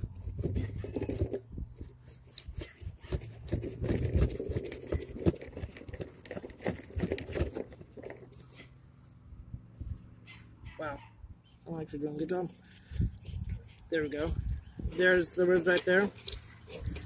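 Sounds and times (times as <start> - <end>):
knife cutting through fish bones: 15.5 - 17.0.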